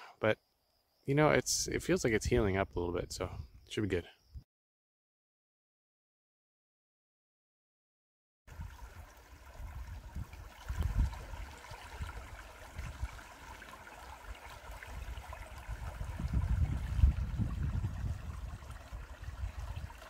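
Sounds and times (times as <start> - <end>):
creek gurgling over stones: 8.5 - 20.0
low rumbling gusts: 14.9 - 20.0.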